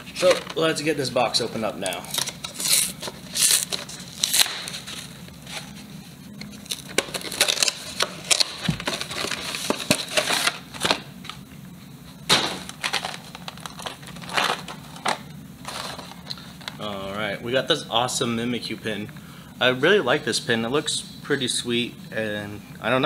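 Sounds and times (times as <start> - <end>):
packaging crinkling and crackling: 1.8 - 5.1, 6.6 - 11.0, 12.6 - 16.9.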